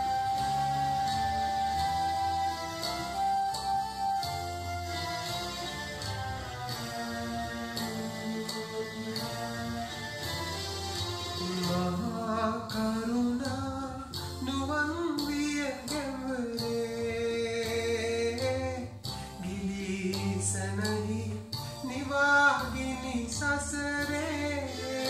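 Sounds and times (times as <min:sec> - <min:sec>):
recorded instrumental backing track: 0:00.0 - 0:25.0
man singing into a microphone: 0:11.4 - 0:25.0.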